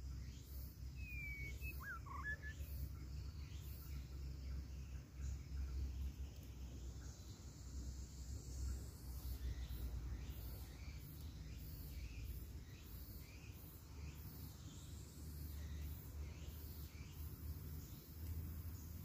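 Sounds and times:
pulsing high insect song: 0.0s - 19.0s
bird chirps: 0.9s - 7.2s.

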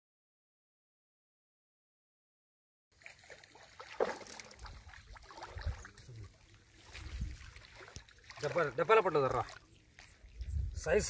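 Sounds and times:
water sloshing around legs: 3.0s - 11.0s.

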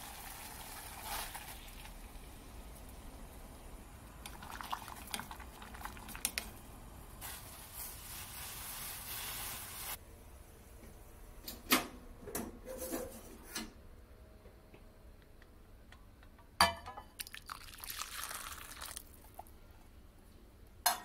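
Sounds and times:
water boiling hard: 0.0s - 2.2s, 4.3s - 6.4s, 17.2s - 19.3s.

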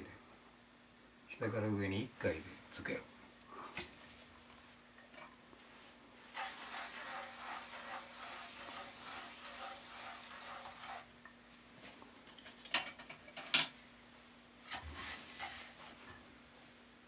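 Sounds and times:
potter's wheel humming: 6.3s - 11.1s.

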